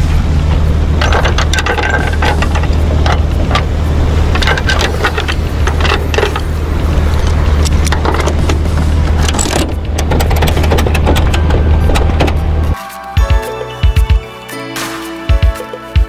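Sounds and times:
truck engine idling: 0.0 - 12.8
ratchet strap clicking and clanking: 1.0 - 12.8.

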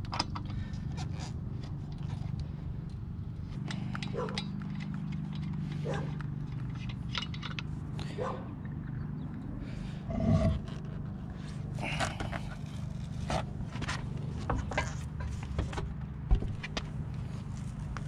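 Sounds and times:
metallic clicks and scrapes: 0.0 - 8.9
steady low hum: 0.0 - 18.0.

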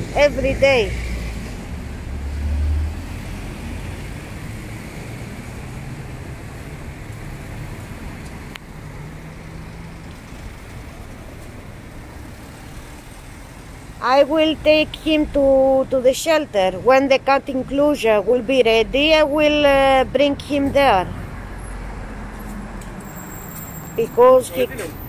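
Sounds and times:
vehicle passing close by: 0.0 - 14.0
background traffic noise: 0.0 - 25.0.

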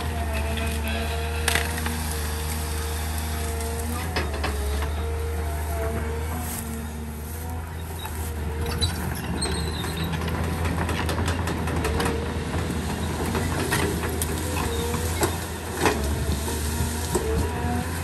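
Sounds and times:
excavator diesel engine running: 0.0 - 18.0
branches snapping and cracking: 0.6 - 4.7.

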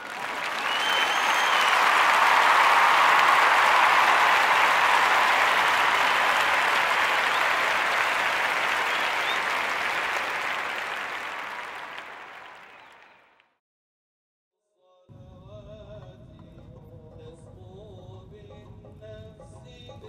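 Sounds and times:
crowd applauding: 0.0 - 13.4.

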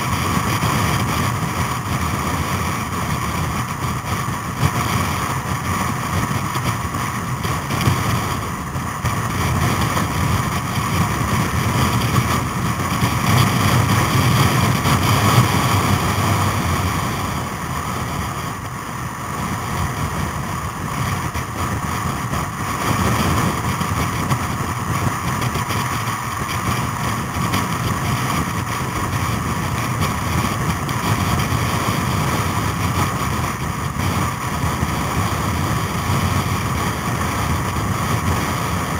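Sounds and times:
motorcycle engine running: 0.0 - 38.9
wind on microphone: 0.0 - 38.9.

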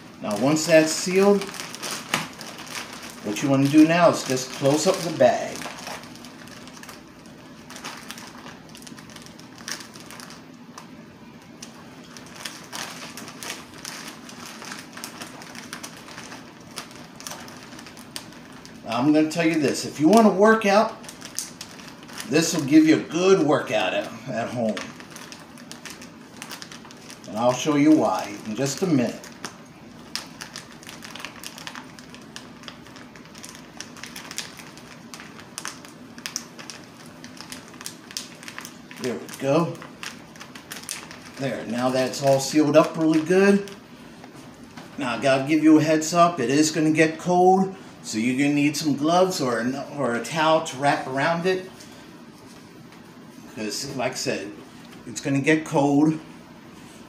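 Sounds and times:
ice shifting in bag: 0.2 - 7.0.

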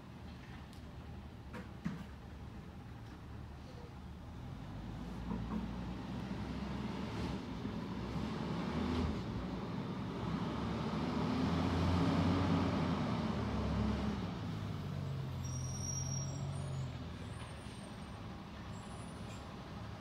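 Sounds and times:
faint high squeal: 15.2 - 19.6.

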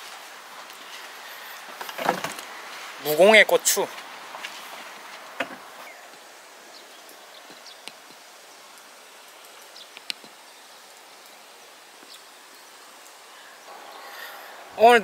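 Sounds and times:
rustling leaves: 0.0 - 15.0
steady hiss of air: 0.0 - 15.0
faint ticks: 7.0 - 10.4.

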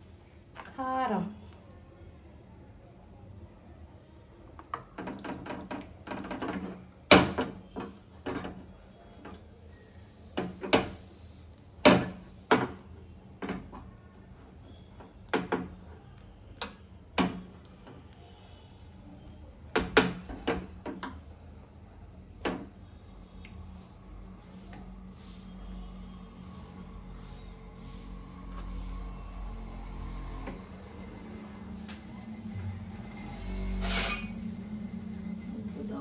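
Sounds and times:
steel spoon scraping a pan: 30.0 - 36.0.

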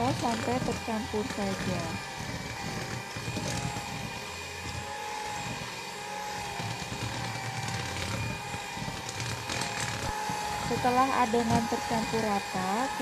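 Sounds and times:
electric hand mixer whining: 0.0 - 13.0.

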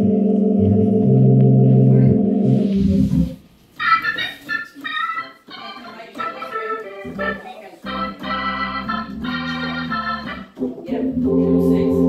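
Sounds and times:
bass line: 0.0 - 3.4, 7.1 - 12.0
organ playing blues chords: 0.0 - 12.0.

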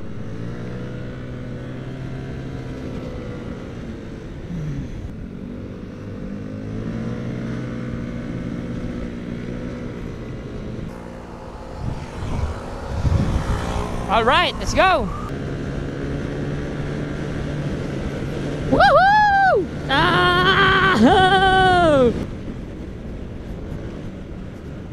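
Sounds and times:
scooter engine revving: 0.0 - 18.8, 19.6 - 22.3.

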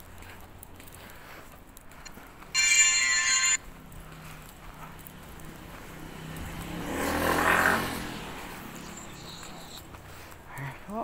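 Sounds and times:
motor vehicle passing: 0.0 - 11.0.

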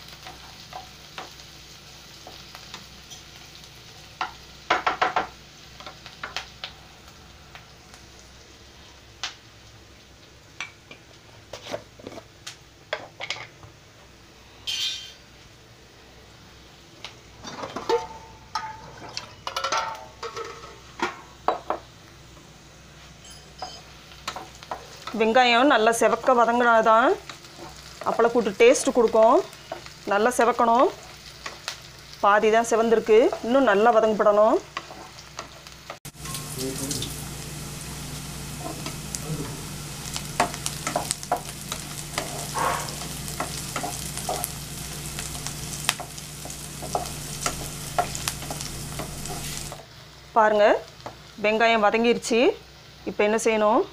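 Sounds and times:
onions sizzling in oil: 0.0 - 53.9
utensils clinking against pans: 14.7 - 15.2, 17.4 - 21.7, 23.2 - 25.3
spatula scraping pan: 40.4 - 44.6.

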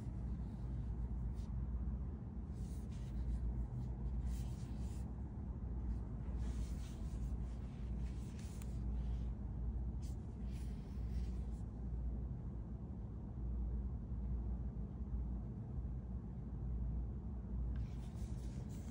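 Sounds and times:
hands rustling a power bank: 6.3 - 9.0.

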